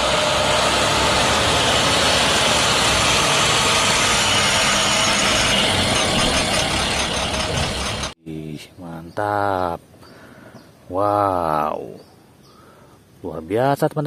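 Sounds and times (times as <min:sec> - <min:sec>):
bus engine running: 0:00.0 - 0:08.2
road noise: 0:00.0 - 0:11.0.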